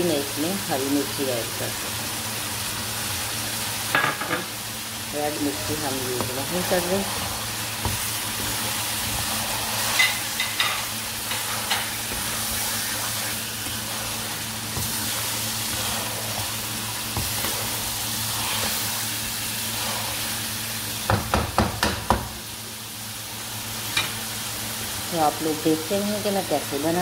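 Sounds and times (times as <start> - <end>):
food sizzling in a wok: 0.0 - 27.0
spatula scraping a pan: 5.4 - 20.6.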